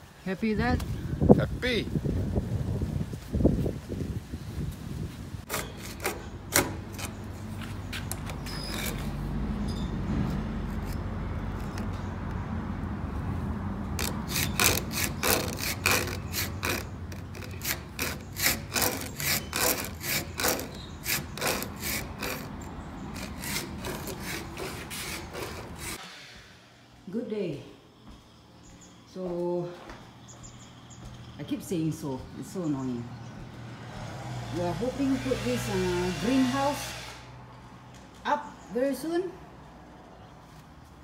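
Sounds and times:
file rasping on chainsaw chain: 5.5s - 7.3s, 8.0s - 9.2s, 14.0s - 26.0s, 34.6s - 37.2s.

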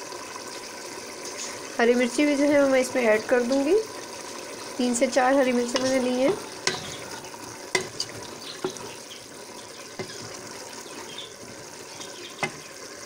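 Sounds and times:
curry bubbling and sizzling: 0.0s - 13.0s
spoon knocking on pot: 5.7s - 9.0s, 10.0s - 10.5s, 11.5s - 12.7s.

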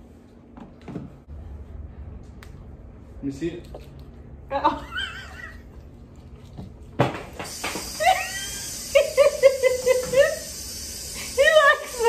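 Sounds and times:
woman laughing: 4.5s - 5.7s, 8.0s - 10.5s.

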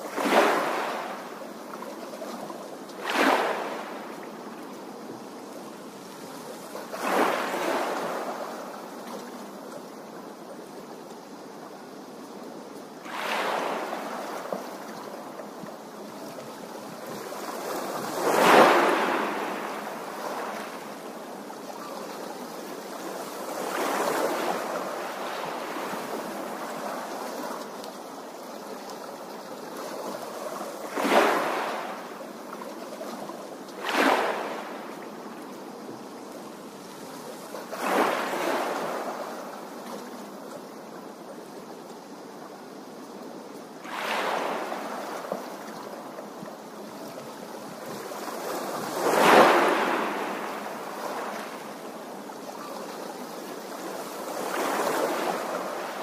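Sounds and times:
small waves splashing on stones: 3.0s - 4.0s, 30.9s - 32.0s, 33.8s - 34.7s, 48.5s - 51.6s.

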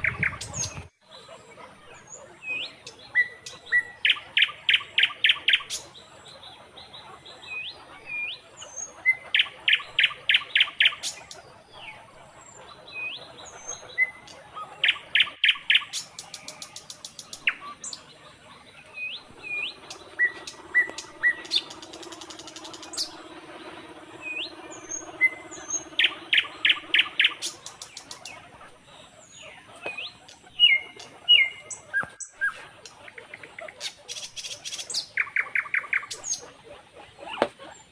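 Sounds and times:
birds chirping and whistling: 0.0s - 37.9s
faint low hum: 16.0s - 37.9s.

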